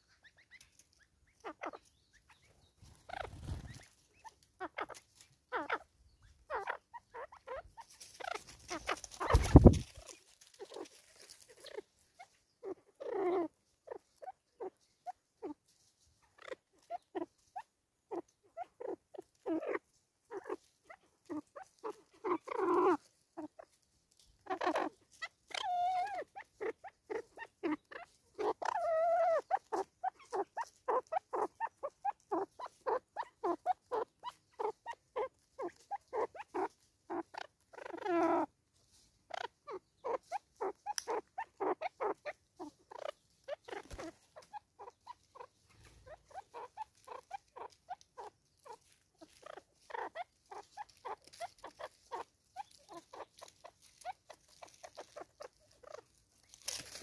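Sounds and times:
hornbill clucking call: 6.5 - 10.9, 21.3 - 23.6, 24.4 - 38.5, 39.3 - 56.1.

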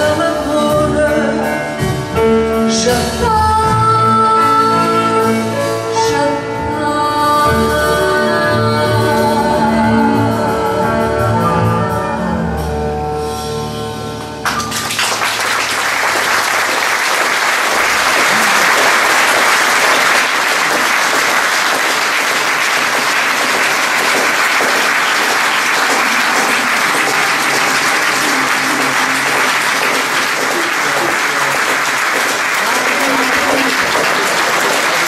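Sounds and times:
audience applauding: 14.4 - 35.0.

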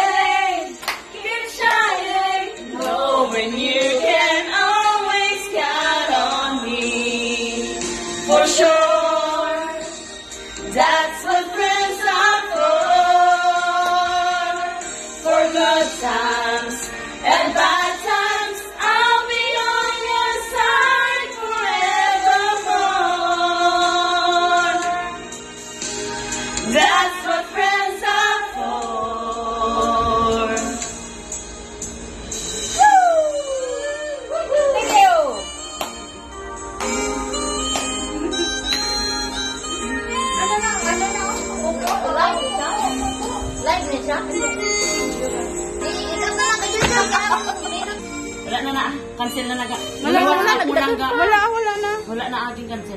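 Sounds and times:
women singing karaoke: 0.0 - 25.4, 26.6 - 31.0, 32.8 - 35.6.

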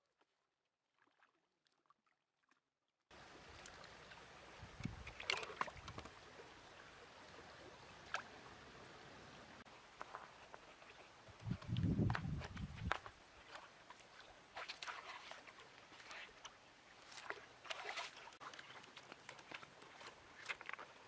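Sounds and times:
stream running over stones: 3.1 - 21.0
splashes of fish trap in water: 5.0 - 6.2, 13.5 - 16.4, 17.1 - 19.6.

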